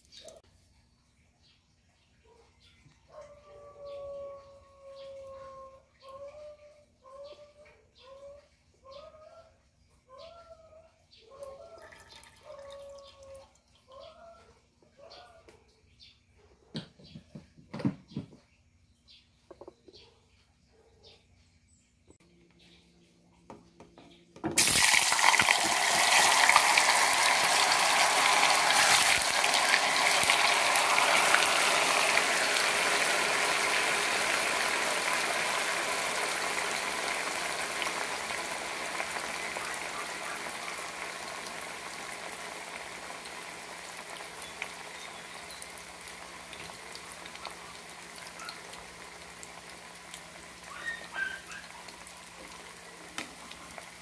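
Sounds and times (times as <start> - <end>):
tofu sizzling in hot oil: 24.6 - 54.0.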